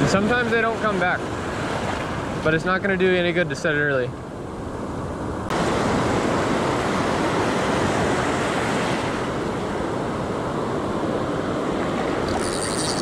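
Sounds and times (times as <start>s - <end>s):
ocean surf rushing: 0.0s - 3.6s, 4.5s - 13.0s.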